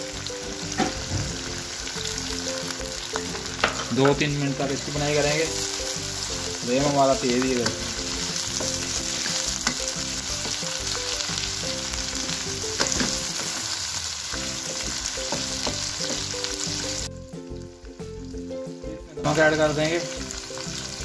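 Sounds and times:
food sizzling in hot oil: 0:00.0 - 0:21.0
wooden spatula scraping wok: 0:03.0 - 0:17.0.

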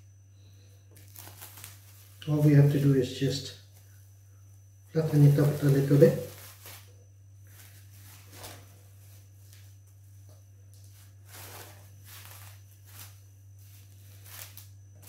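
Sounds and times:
steady low hum: 0:00.0 - 0:15.0
cling film crinkling: 0:01.0 - 0:02.4, 0:05.0 - 0:06.9.

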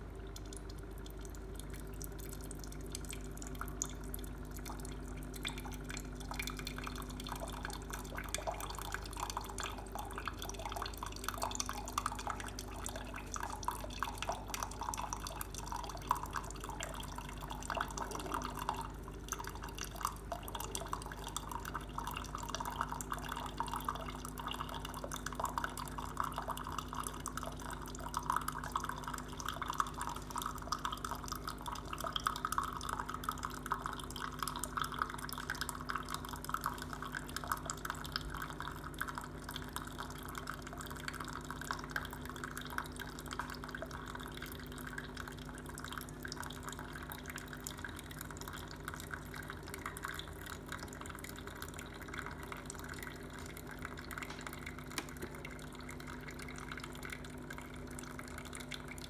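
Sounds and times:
coffee pouring into a mug: 0:00.0 - 0:59.0
steady low hum: 0:00.0 - 0:59.0.

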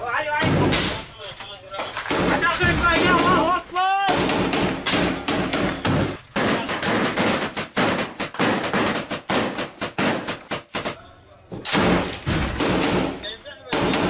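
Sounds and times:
machine gun firing bursts: 0:04.1 - 0:11.0.

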